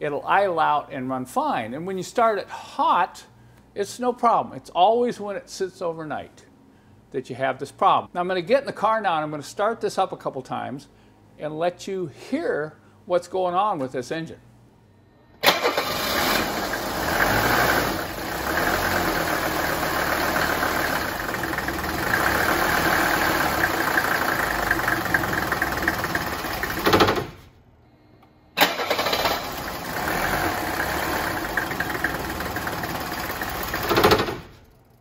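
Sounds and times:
diesel engine starting and running: 15.4 - 27.5, 28.6 - 34.8.

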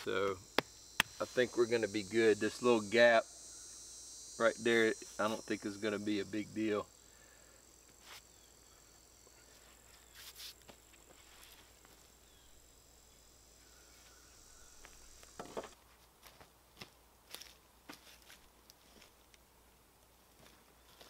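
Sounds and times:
high-pitched insect drone: 0.0 - 15.8.

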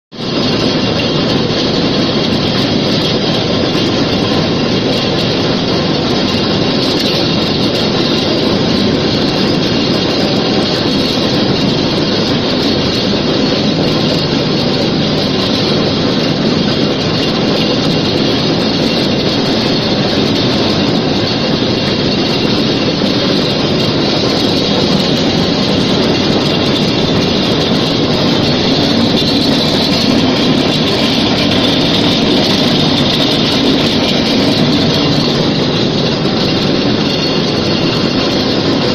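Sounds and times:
stranding machine mechanical din: 0.1 - 38.9.

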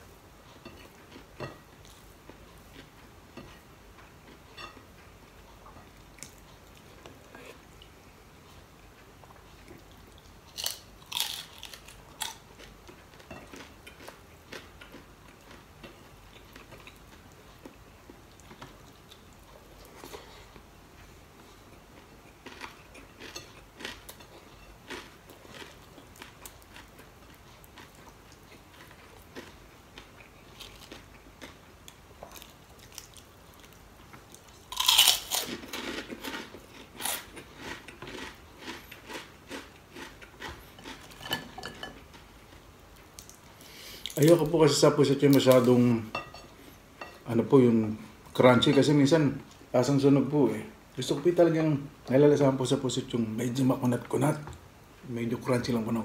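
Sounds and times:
person crunching crispy fish: 10.5 - 12.4, 34.7 - 40.2.

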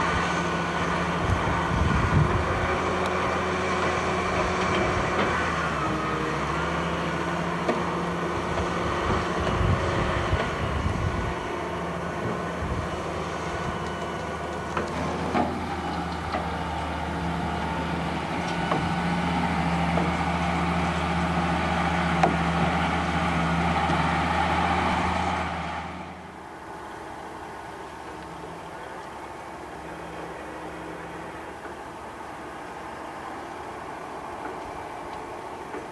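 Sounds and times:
diesel engine running: 0.0 - 35.9.

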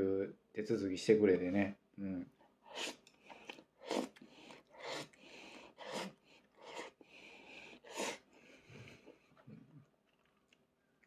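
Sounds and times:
person slurping noodles: 2.7 - 7.0, 7.6 - 8.2.

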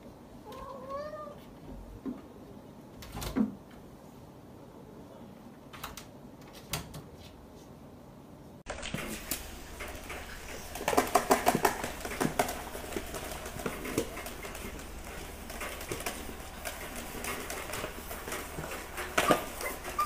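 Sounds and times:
puppies scrabbling in plastic tub: 8.7 - 20.0.

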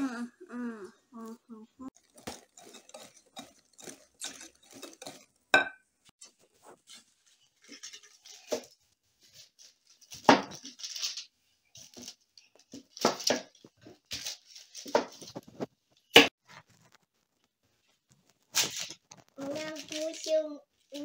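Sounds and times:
baking paper rustling and crinkling: 6.2 - 21.0.

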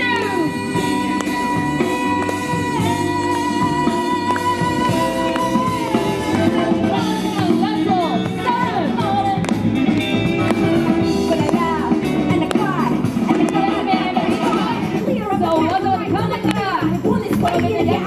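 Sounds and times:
music with singing voice: 0.0 - 18.0.

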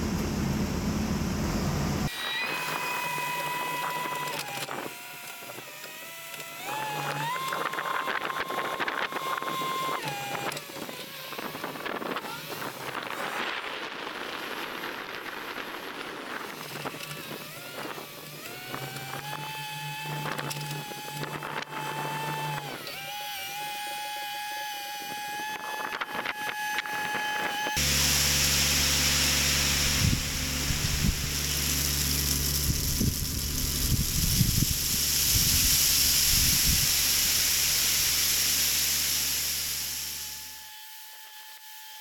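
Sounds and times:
tractor and combine running: 0.0 - 4.8, 25.8 - 40.2
machine whine: 0.0 - 41.7
low hum: 27.8 - 40.5.

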